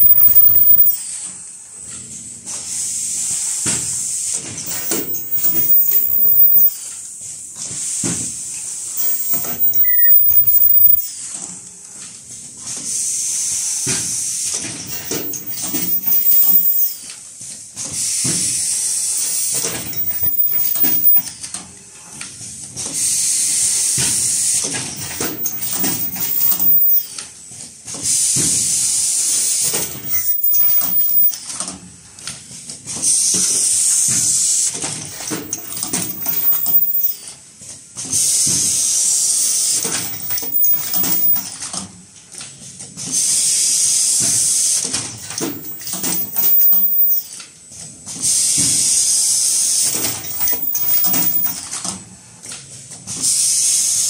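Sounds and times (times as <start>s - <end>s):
machine clattering and clicking: 4.6s - 6.8s, 9.0s - 11.0s, 14.9s - 17.1s, 25.0s - 27.2s, 29.5s - 31.4s, 34.8s - 37.2s, 39.7s - 41.8s, 45.2s - 47.2s, 49.8s - 51.7s
sharp mechanical clack: 4.7s - 6.8s, 14.9s - 17.1s, 25.0s - 27.2s, 35.1s - 37.3s, 39.7s - 41.7s, 49.8s - 51.8s.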